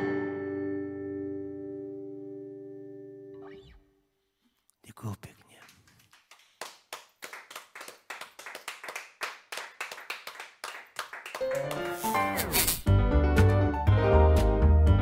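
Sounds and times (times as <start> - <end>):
music: 0.0 - 3.8, 11.4 - 15.0
small audience applauding: 5.4 - 12.5.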